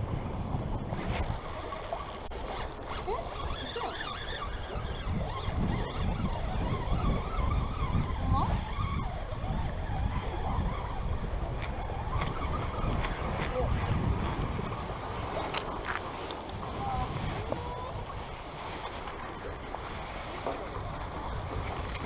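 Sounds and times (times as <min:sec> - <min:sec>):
wind rumble on microphone: 0:00.0 - 0:22.0
fishing reel gears whining: 0:00.9 - 0:12.2, 0:15.6 - 0:16.0.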